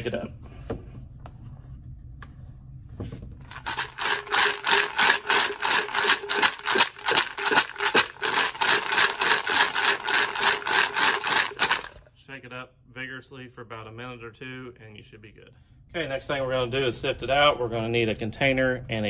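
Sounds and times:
bullets rattling in plastic pipe: 3.5 - 12.0.

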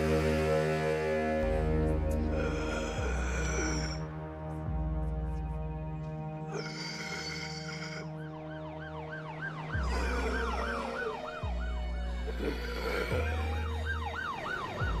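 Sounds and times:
music pad with deep bass: 0.0 - 15.0
sirens yelping: 6.6 - 15.0
siren wail gliding down: 7.9 - 15.0.

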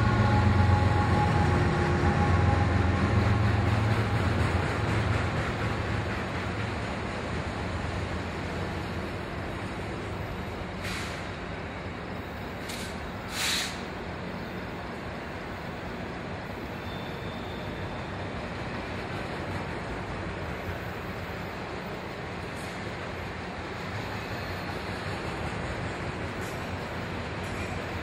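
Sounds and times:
train air brakes hissing: 10.6 - 11.7, 12.3 - 14.0.

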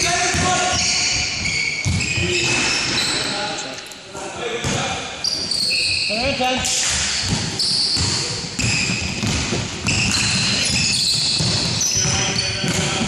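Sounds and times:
basketball bouncing: 0.2 - 2.7, 6.2 - 13.0
shoes squeaking on hardwood: 5.2 - 13.0.

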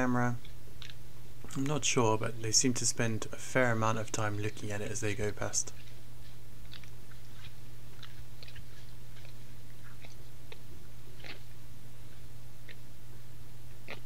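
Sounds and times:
steady low hum: 0.0 - 14.0
deer tearing and cropping grass: 5.8 - 10.2.

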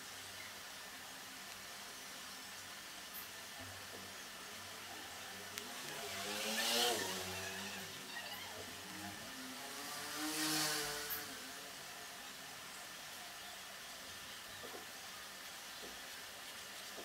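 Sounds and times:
motor vehicles passing by: 4.8 - 12.4.

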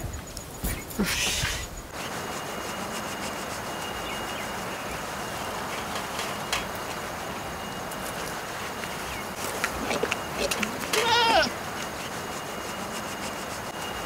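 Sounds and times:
outdoor background hiss: 0.0 - 14.0.

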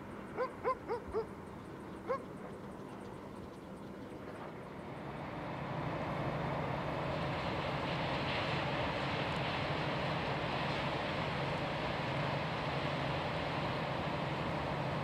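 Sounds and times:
freight train rumble: 0.0 - 15.0
dog barking: 0.4 - 1.3.

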